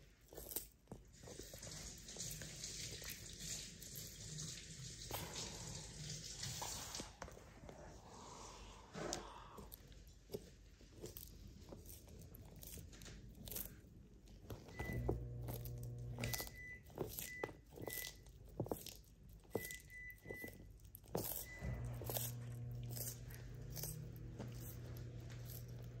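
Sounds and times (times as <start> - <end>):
tortoise crunching food: 0.0 - 26.0
low hum: 21.4 - 26.0.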